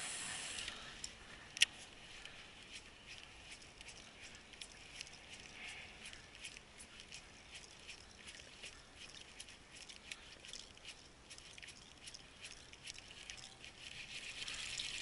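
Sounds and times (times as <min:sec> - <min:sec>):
ripples lapping on kayak hull: 0:02.2 - 0:15.0.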